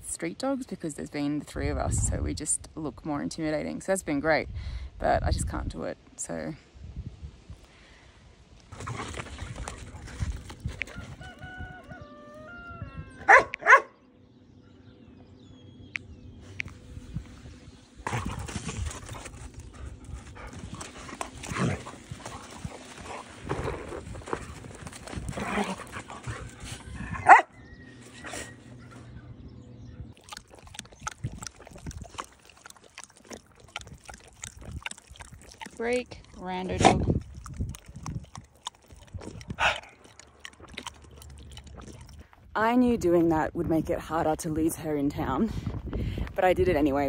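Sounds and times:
dog barking: 13.3s - 14.0s, 27.2s - 27.5s.

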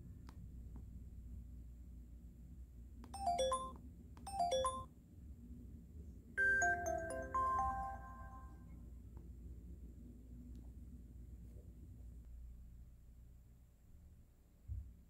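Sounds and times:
phone power-off melody: 3.2s - 3.7s, 4.3s - 4.8s, 6.4s - 8.7s
phone electronic chime tones: 3.2s - 4.9s, 6.4s - 8.6s.

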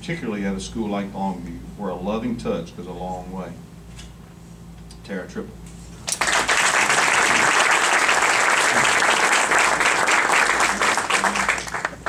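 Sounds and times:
audience clapping: 6.1s - 12.0s.

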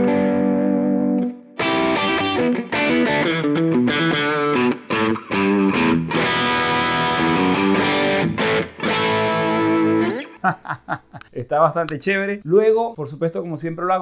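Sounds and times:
overdriven electric guitar lead: 0.0s - 10.4s.

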